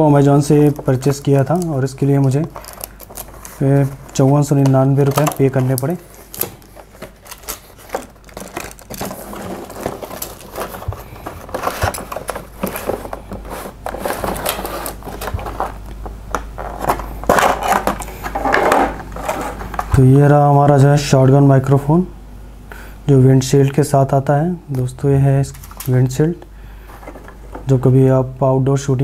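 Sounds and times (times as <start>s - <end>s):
packaging rustling and scraping: 0.0s - 20.3s, 26.8s - 27.8s.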